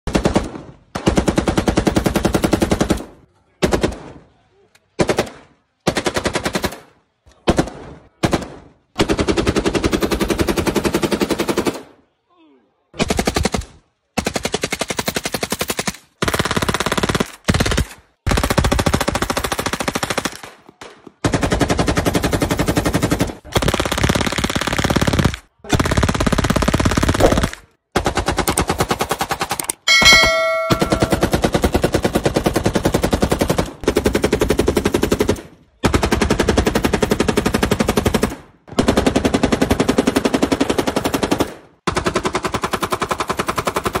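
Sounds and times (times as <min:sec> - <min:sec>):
brief ringing tone: 0:29.9 - 0:31.3.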